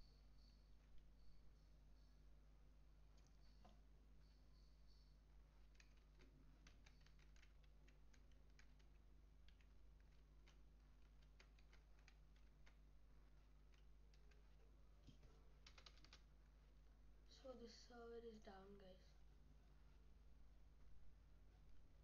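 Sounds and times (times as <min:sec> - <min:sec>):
faint low hum: 0:00.0 - 0:22.0
keyboard typing: 0:05.5 - 0:16.3.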